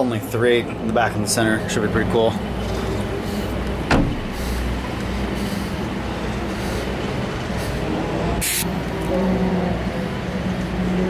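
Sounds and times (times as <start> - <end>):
low engine drone: 0.0 - 11.0
brief hiss: 8.4 - 8.6.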